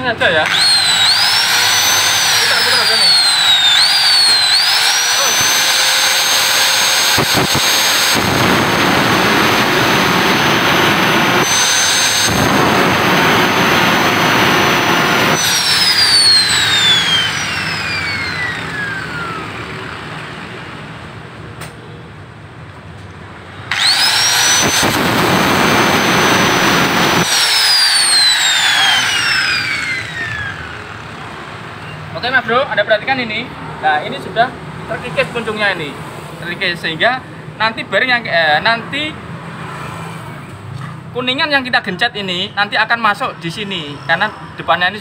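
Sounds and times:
angle grinder grinding steel: 0:00.4 - 0:19.9, 0:23.7 - 0:31.3.

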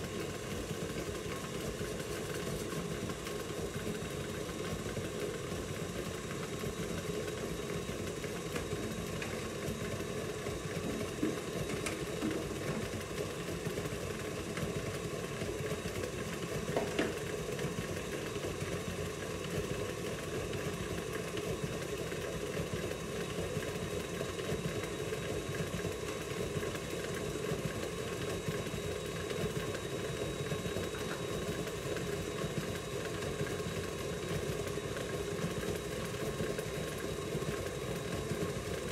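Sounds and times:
stand mixer motor humming: 0:00.0 - 0:38.9.

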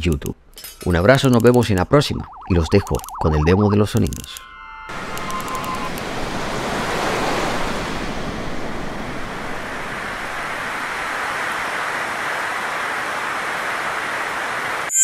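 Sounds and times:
waves breaking: 0:04.9 - 0:14.8.

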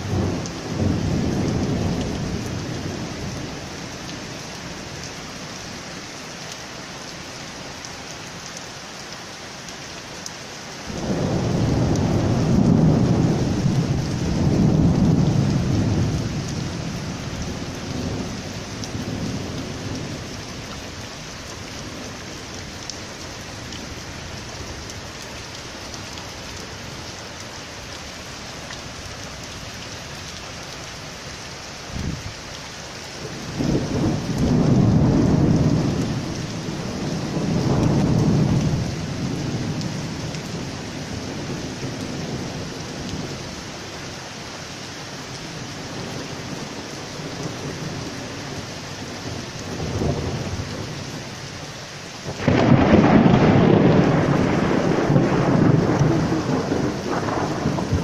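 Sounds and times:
heavy rain on paving: 0:00.0 - 0:58.0
thunder rumbling: 0:10.9 - 0:20.3, 0:33.4 - 0:43.4, 0:52.3 - 0:58.0.

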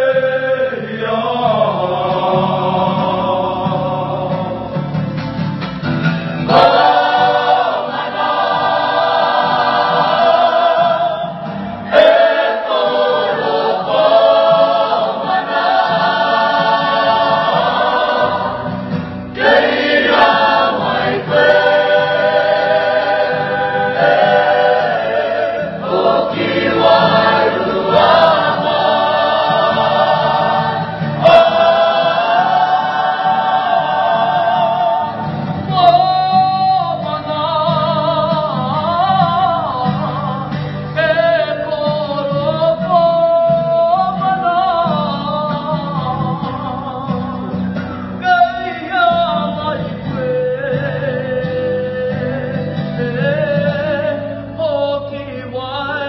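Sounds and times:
choir singing held notes: 0:00.0 - 0:04.9, 0:06.4 - 0:36.0.

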